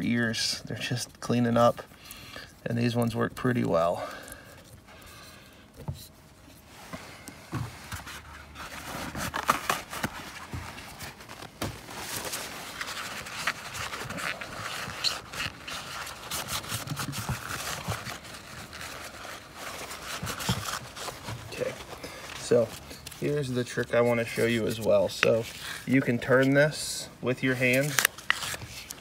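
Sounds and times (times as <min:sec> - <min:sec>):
cotton swab rubbing and scratching: 0:12.2 - 0:26.7.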